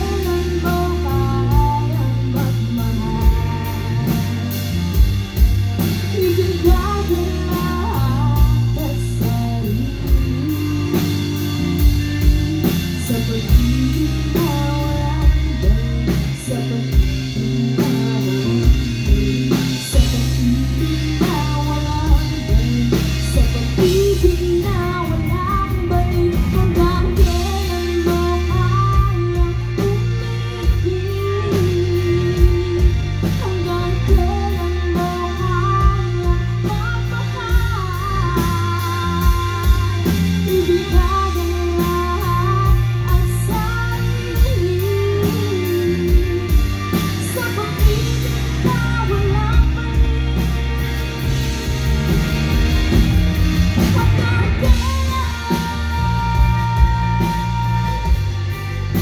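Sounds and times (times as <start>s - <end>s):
drum kit beat: 0.0s - 59.0s
electric guitar: 0.0s - 59.0s
person singing: 0.0s - 59.0s.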